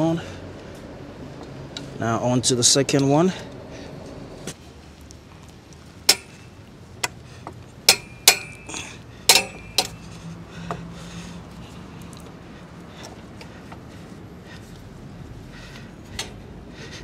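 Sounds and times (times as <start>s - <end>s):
metallic clinks on steel stand: 7.9s - 10.0s.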